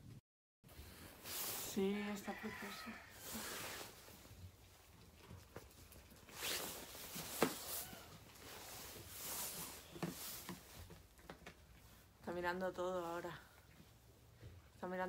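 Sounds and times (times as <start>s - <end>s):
hooves scuffing on bedding: 6.3s - 11.6s.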